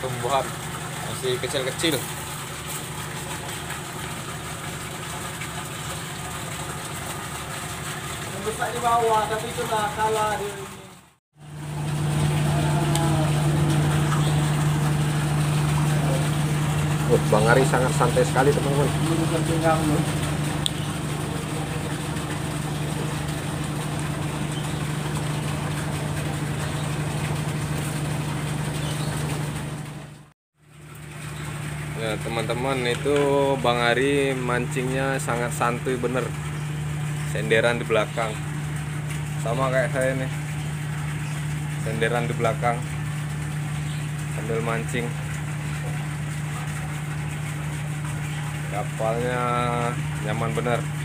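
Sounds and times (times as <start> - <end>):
engine idling: 0.0 - 51.0
ship engine droning: 8.3 - 30.3.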